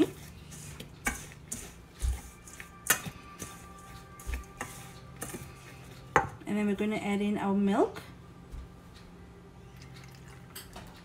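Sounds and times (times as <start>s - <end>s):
whisk stirring flour in bowl: 0.0s - 6.2s
soft background music: 0.0s - 11.0s.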